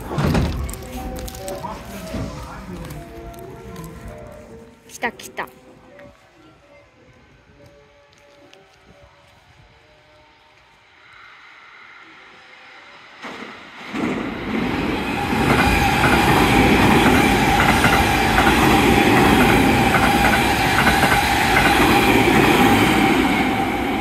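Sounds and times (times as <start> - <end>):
steady train whine: 5.5 - 24.0
express train passing at speed: 5.8 - 24.0
wheels clacking over rail joints: 13.2 - 23.1.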